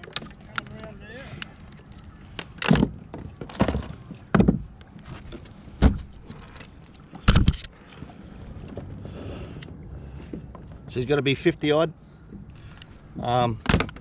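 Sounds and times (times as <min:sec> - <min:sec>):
knocks and thumps on kayak: 0:02.5 - 0:06.6.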